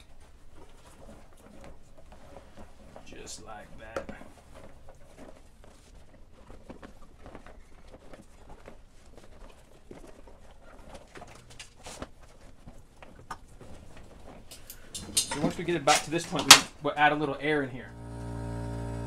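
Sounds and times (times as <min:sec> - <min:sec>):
rubber rubbing and rustling: 0:00.0 - 0:14.6.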